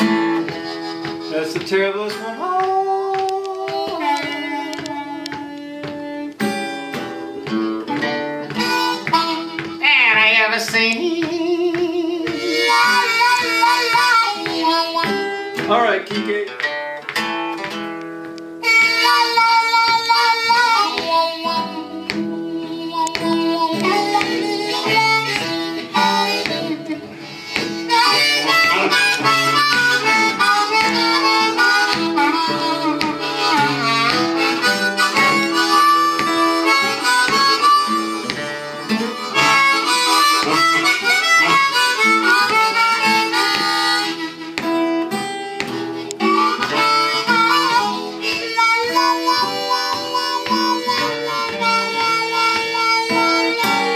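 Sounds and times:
blues harmonica: 0:00.0 - 0:53.9
strummed acoustic guitar: 0:00.0 - 0:53.9.

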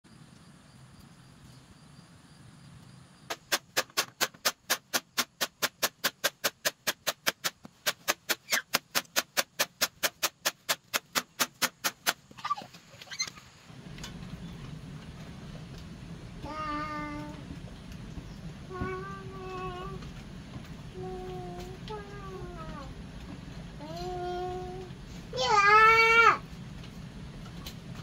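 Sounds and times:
rapid sharp taps: 0:03.3 - 0:12.4.

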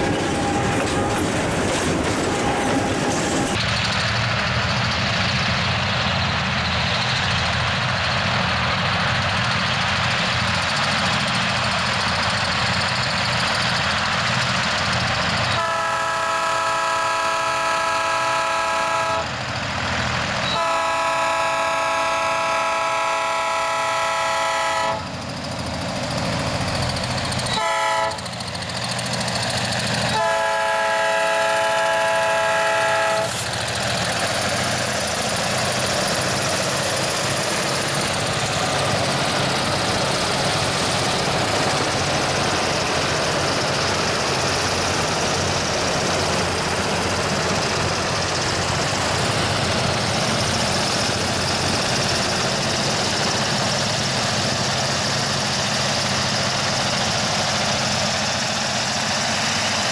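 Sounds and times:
train rumble: 0:00.0 - 0:59.9
locomotive air horn blasts: 0:15.5 - 0:19.3, 0:20.5 - 0:25.1, 0:27.5 - 0:28.2, 0:30.1 - 0:33.4.

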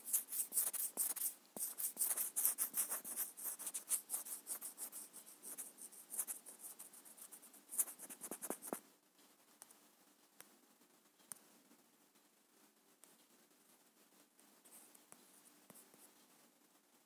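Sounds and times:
scratchy rubbing on touchscreen: 0:00.0 - 0:08.8.

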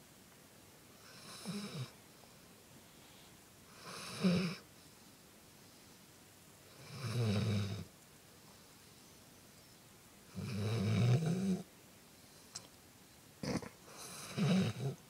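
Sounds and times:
dog snoring: 0:01.0 - 0:02.0, 0:03.7 - 0:04.6, 0:06.7 - 0:07.9, 0:10.3 - 0:11.7, 0:13.4 - 0:15.0.

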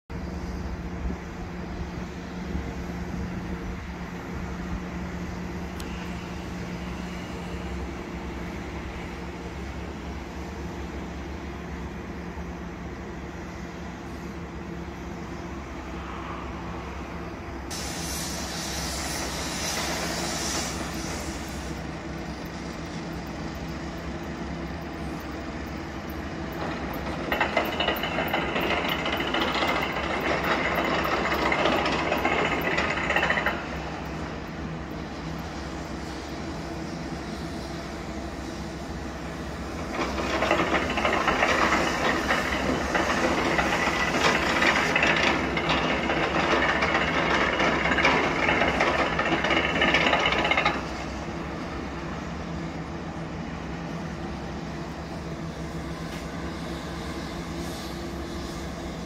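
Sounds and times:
hiss: 0:15.8 - 0:24.1, 0:35.1 - 0:51.7, 0:54.2 - 0:59.0.

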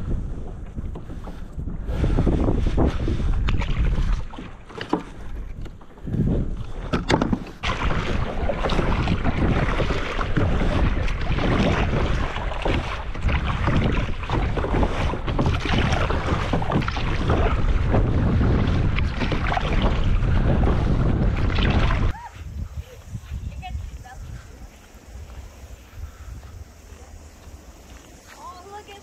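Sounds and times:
water splashing against hull: 0:00.0 - 0:22.6
wind buffeting microphone: 0:00.0 - 0:29.0.

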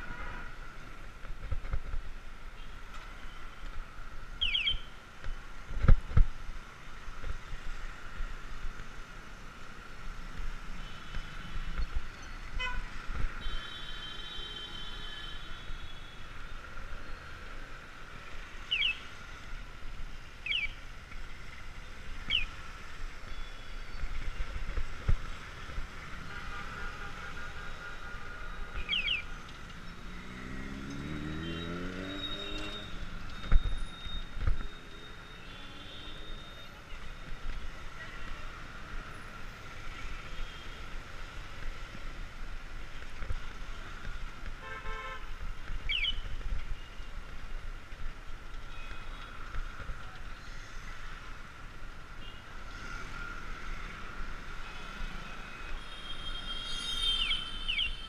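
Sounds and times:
traffic engines: 0:00.0 - 0:58.0
engine revving: 0:30.1 - 0:32.9
car horn toots: 0:44.6 - 0:45.3.

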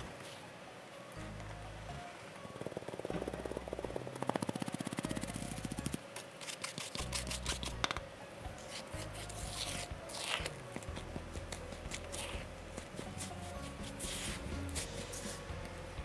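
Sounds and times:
soft background music: 0:00.0 - 0:16.0
sieve shaking flour: 0:13.0 - 0:15.5.

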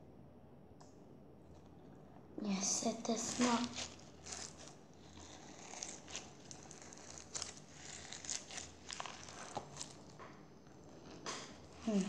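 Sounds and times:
crunchy slime crackling: 0:02.4 - 0:12.0.

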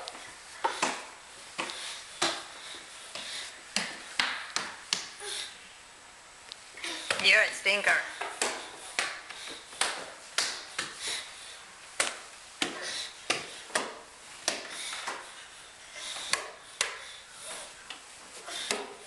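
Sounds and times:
baby's hands slapping wood floor: 0:08.3 - 0:11.2.

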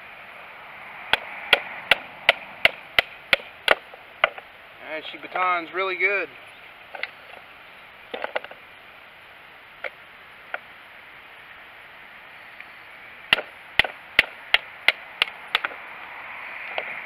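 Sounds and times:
baton striking knife through wood: 0:01.1 - 0:04.5, 0:13.3 - 0:15.8.

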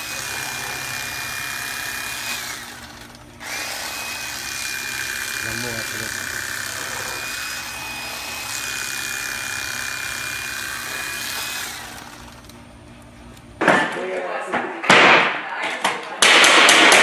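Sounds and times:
electric knife whining: 0:00.0 - 0:13.5.

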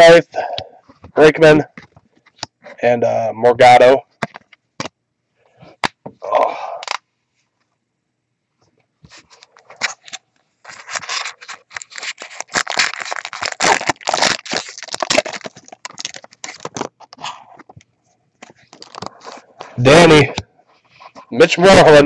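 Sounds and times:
foil wrapper crinkling and tearing: 0:09.4 - 0:17.4, 0:18.4 - 0:19.8.

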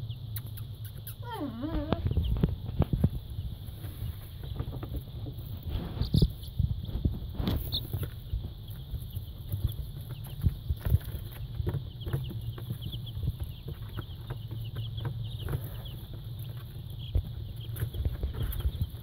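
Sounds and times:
baby chicks peeping: 0:00.0 - 0:19.0.

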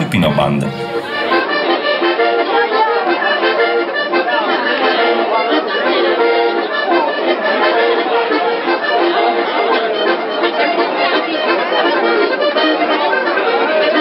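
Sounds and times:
button accordion dance tune: 0:00.0 - 0:14.0.

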